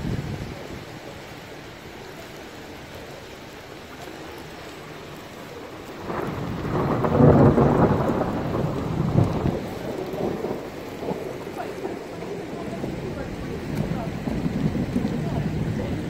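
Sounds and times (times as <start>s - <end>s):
rain hissing: 0.0s - 16.0s
thunder rumbling: 3.2s - 16.0s.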